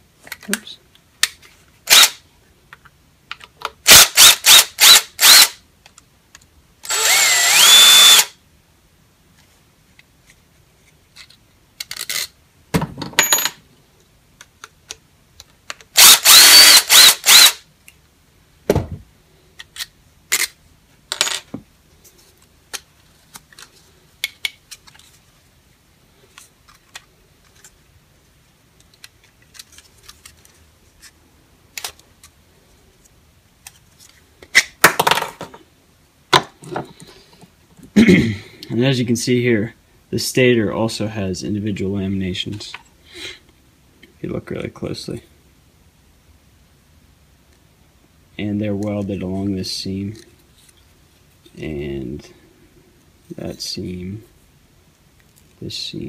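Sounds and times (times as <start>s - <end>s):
small clicks of parts handled: 0.2s - 1.6s, 2.7s - 3.8s, 5.8s - 6.5s, 9.4s - 12.4s, 14.4s - 15.9s, 19.5s - 21.5s, 22.4s - 25.2s, 26.3s - 27.8s, 28.8s - 32.4s.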